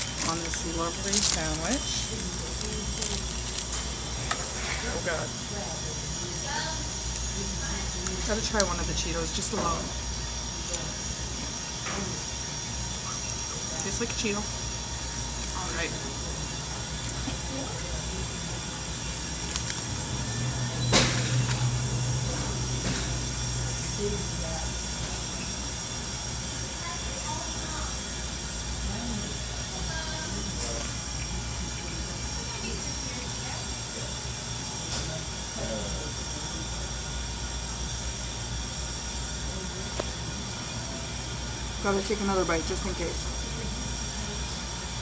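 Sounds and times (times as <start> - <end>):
background hum: 0.0 - 22.6
high steady equipment whine: 0.0 - 45.0.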